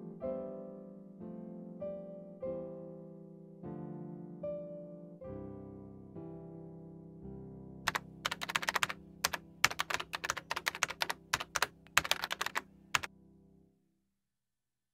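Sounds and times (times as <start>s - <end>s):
piano music: 0.0s - 13.6s
keyboard typing clicks: 7.9s - 13.1s.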